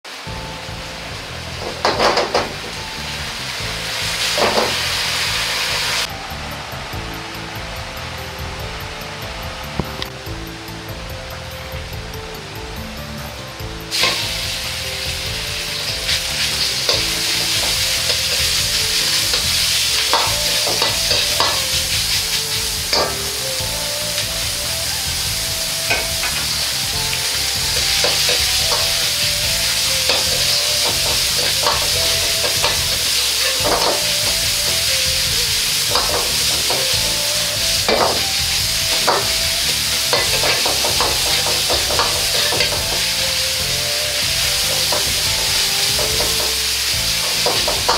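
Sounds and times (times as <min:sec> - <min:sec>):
meat sizzling in oil: 0:00.1 - 0:06.1, 0:13.6 - 0:47.9
ladle scraping wok: 0:13.9 - 0:47.9.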